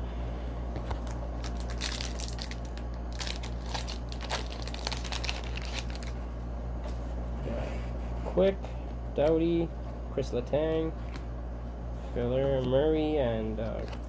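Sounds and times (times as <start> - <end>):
steady low hum: 0.0 - 14.0
foil wrappers crinkling: 0.9 - 6.2.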